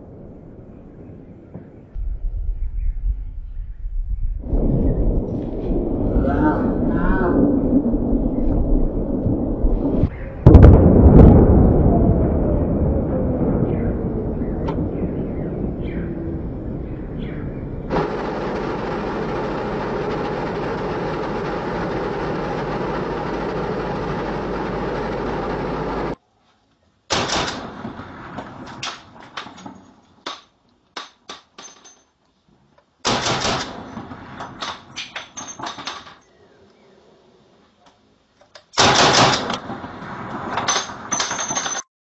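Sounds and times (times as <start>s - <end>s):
assault rifle fire: 17.9s - 26.2s, 27.1s - 28.8s, 33.0s - 34.4s, 38.8s - 41.1s
tank engine running: 17.9s - 26.2s.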